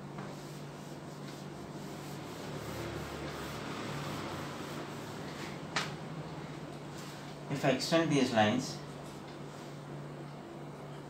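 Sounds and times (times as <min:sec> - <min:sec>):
cloth wiping whiteboard: 0:00.2 - 0:05.8.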